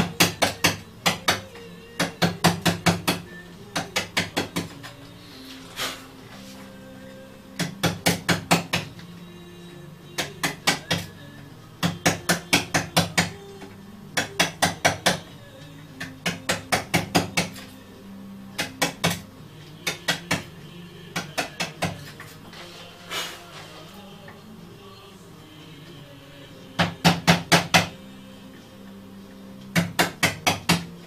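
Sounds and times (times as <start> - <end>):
wooden mallet tapping on wood: 0.0 - 5.0, 7.6 - 8.9, 10.2 - 11.1, 11.8 - 13.4, 14.2 - 15.3, 16.0 - 17.6, 18.6 - 19.2, 19.8 - 20.5, 26.8 - 28.0, 29.7 - 30.9.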